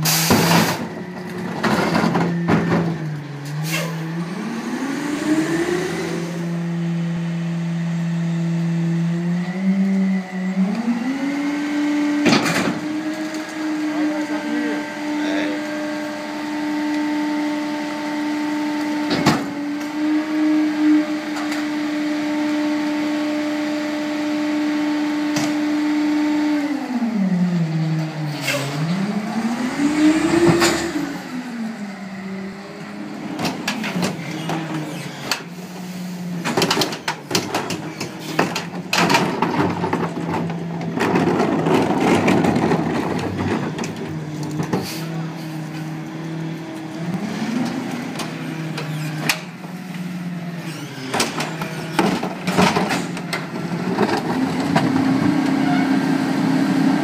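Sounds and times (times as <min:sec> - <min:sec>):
garbage truck engine revving: 0:00.0 - 0:57.0.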